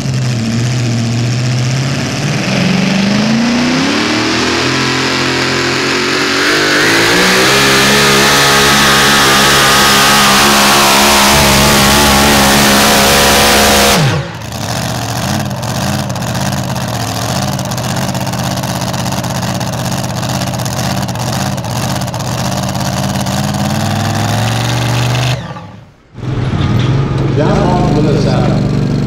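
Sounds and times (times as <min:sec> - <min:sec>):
supercharged engine at full throttle: 0:00.0 - 0:29.0
lumpy engine idle: 0:14.2 - 0:23.5.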